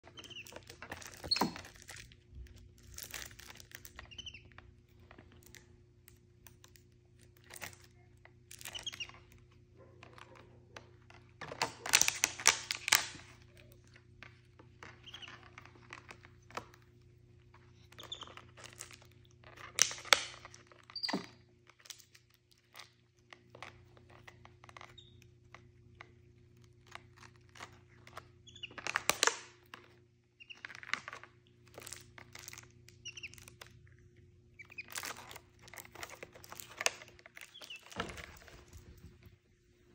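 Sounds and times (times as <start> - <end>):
plastic bottle crinkling: 0.0 - 9.3, 11.4 - 24.9, 30.6 - 33.8, 34.6 - 39.4.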